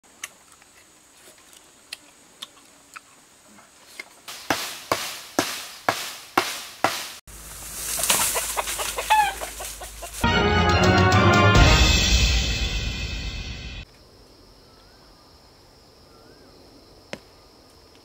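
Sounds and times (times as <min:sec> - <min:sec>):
tool chopping bamboo: 0:04.3 - 0:07.2
chicken clucking: 0:08.0 - 0:10.2.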